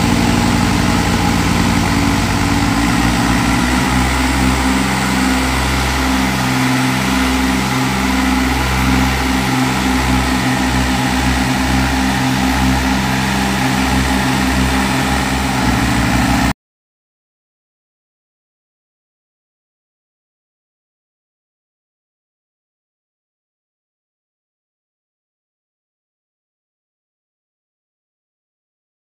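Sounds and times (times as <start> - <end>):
throbbing low drone: 0.0 - 16.6
tractor diesel engines under load: 0.0 - 16.6.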